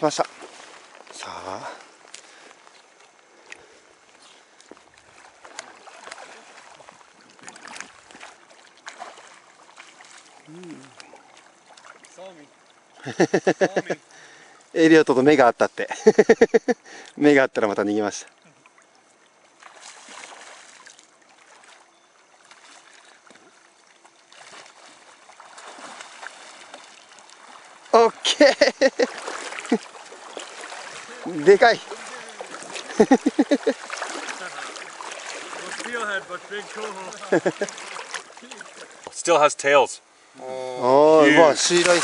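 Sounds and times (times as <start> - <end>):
fish splashing in water: 4.9 - 13.0, 18.6 - 39.1, 41.6 - 42.0
river rushing: 27.4 - 39.0.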